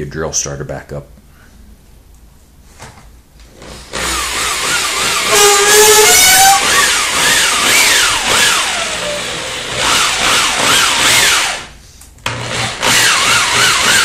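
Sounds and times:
power drill motor whine: 3.6 - 14.0.

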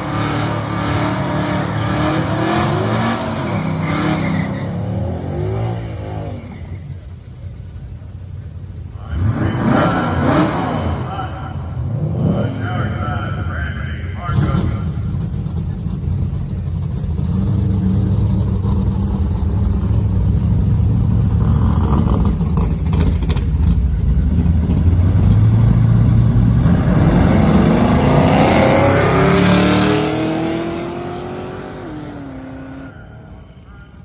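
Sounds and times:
race cars accelerating hard: 0.0 - 6.8, 9.1 - 20.2, 21.0 - 34.0
drag racing cars idling: 6.6 - 28.0.

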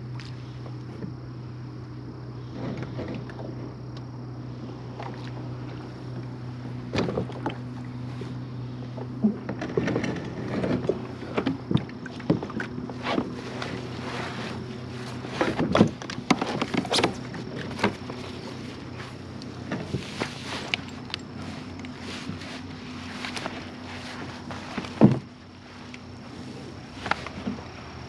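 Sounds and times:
steady low hum: 0.0 - 28.0
knocks and clatter of gear: 4.9 - 28.0.

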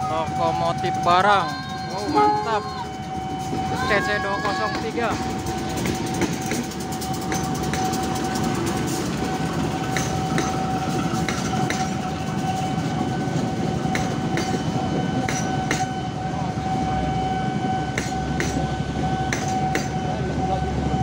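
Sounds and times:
train rumble: 0.0 - 21.0
steady high tone: 0.1 - 8.0
wheels clicking over rail joints: 4.6 - 15.9.

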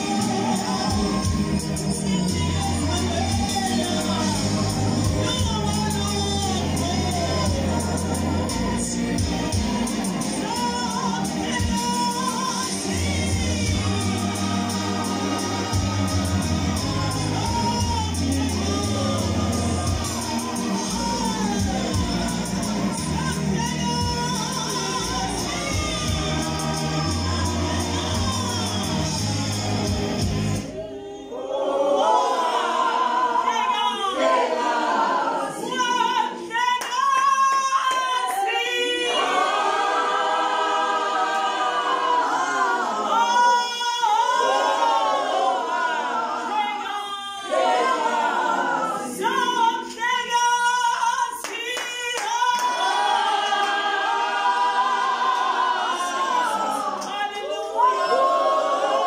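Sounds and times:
voices singing: 0.0 - 59.0
hand claps: 51.4 - 53.9.

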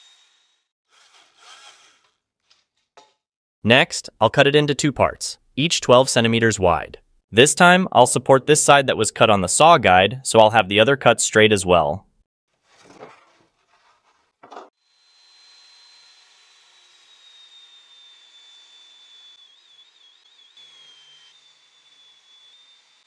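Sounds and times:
table saw whining: 0.0 - 2.2, 14.7 - 23.0.

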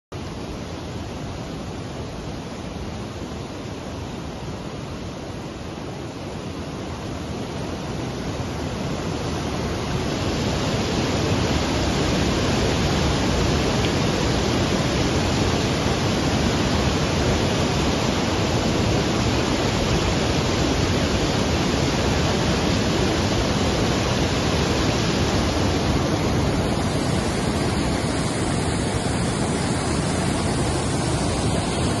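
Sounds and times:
floodwater rushing: 7.5 - 32.0.

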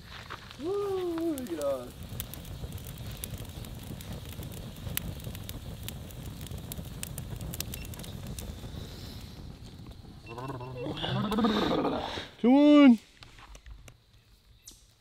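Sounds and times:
low fire rumble: 0.0 - 14.5
campfire crackling and popping: 0.0 - 15.0.

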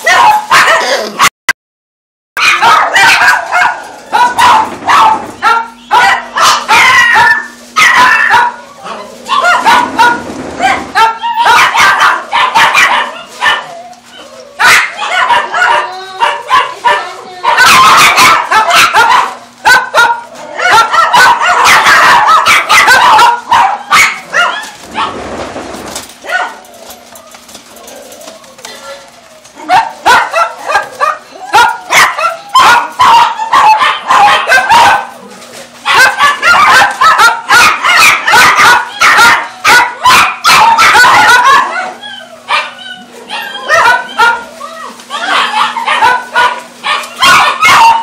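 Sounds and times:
dogs barking and yapping: 0.0 - 1.3, 2.4 - 48.0.

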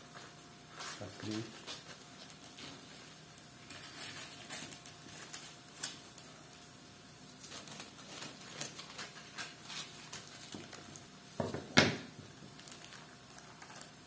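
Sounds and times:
paper rustling: 0.8 - 6.6, 7.3 - 11.0.

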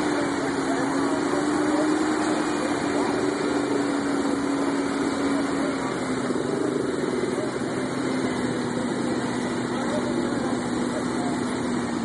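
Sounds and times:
pickup engine at low revs: 0.0 - 12.0.

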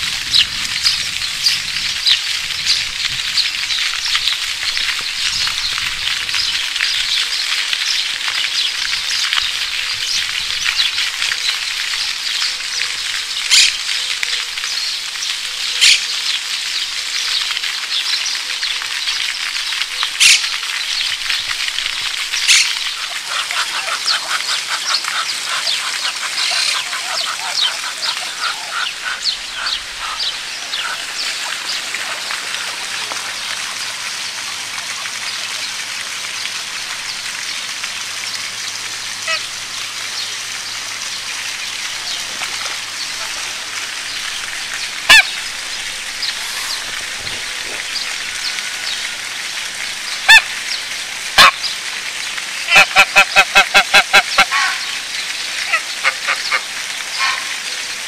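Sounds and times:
crackling hiss of outdoor ambience: 0.0 - 58.0
ducks quacking: 22.4 - 34.0, 39.2 - 39.5, 42.0 - 49.1, 51.3 - 51.8, 52.6 - 54.9, 55.6 - 57.6.

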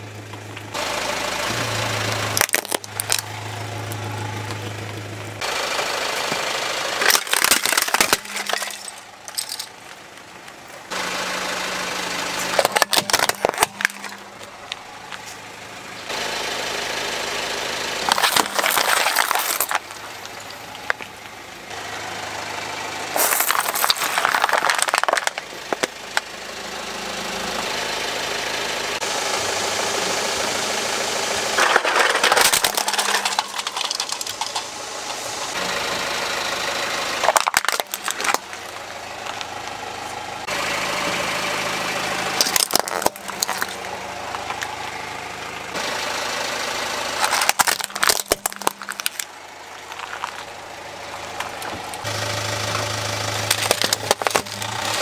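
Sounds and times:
car engine running: 0.0 - 55.0
plastic cracking and crunching: 2.4 - 3.3, 7.0 - 10.6, 12.5 - 15.2, 18.0 - 21.4, 23.2 - 25.9, 31.6 - 34.7, 37.2 - 38.7, 42.4 - 44.7, 47.2 - 50.5, 53.4 - 55.0.

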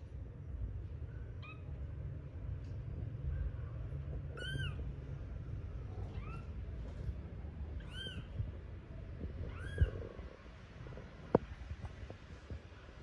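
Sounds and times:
kitten mewing: 9.4 - 10.1.

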